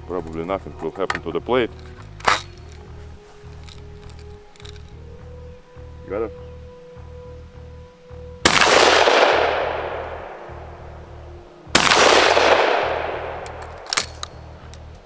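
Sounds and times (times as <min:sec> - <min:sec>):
metallic gun clicks: 0:03.5 - 0:05.0, 0:11.8 - 0:15.0
shotgun shots echoing: 0:08.4 - 0:11.0, 0:11.7 - 0:14.8.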